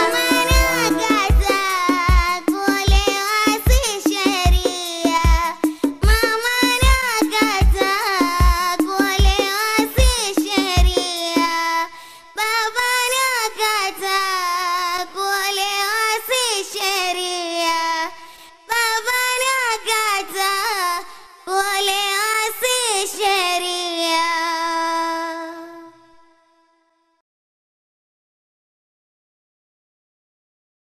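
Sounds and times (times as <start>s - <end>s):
high voice singing: 0.0s - 2.8s
hand drum strikes: 0.0s - 3.1s.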